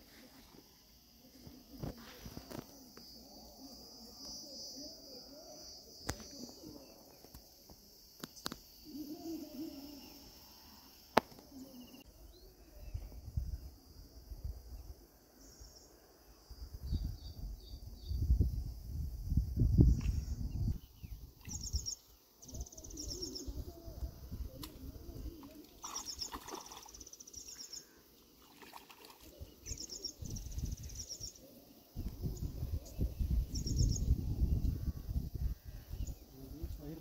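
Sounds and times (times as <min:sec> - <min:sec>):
insects chirring: 0:00.0 - 0:37.0
bird chirps: 0:19.9 - 0:23.8, 0:25.8 - 0:27.9, 0:29.2 - 0:34.7.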